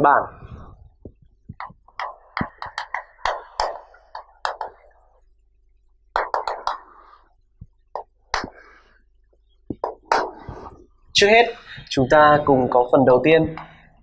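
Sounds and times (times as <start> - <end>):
chalk tapping and scratching on chalkboard: 0.9 - 11.1.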